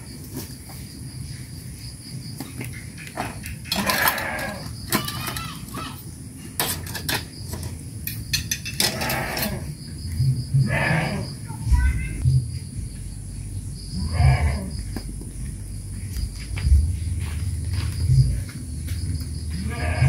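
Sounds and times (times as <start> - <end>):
high insect drone: 0.0 - 20.0
farm animal calls: 3.6 - 5.8, 8.8 - 9.7, 10.6 - 12.2, 13.9 - 15.0, 19.5 - 20.0
footsteps: 14.8 - 20.0.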